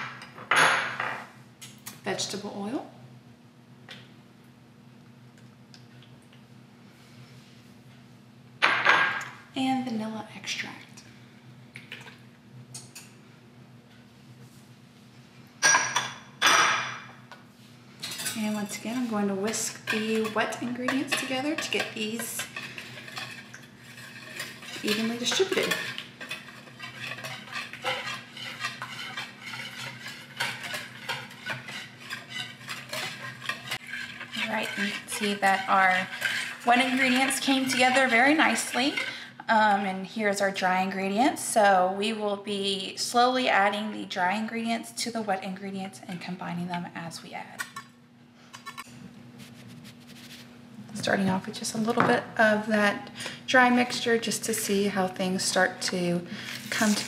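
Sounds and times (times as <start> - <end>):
steady low hum: 17.0 - 40.9.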